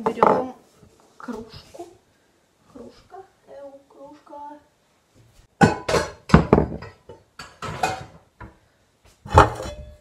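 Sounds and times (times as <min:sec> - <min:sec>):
kitchenware clattering and knocking: 0:00.0 - 0:00.6, 0:05.6 - 0:08.6, 0:09.2 - 0:10.0.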